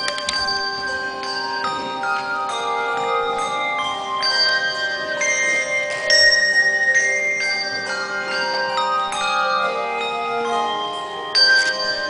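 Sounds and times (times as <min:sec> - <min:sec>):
handbell chords ringing: 0:00.0 - 0:12.0.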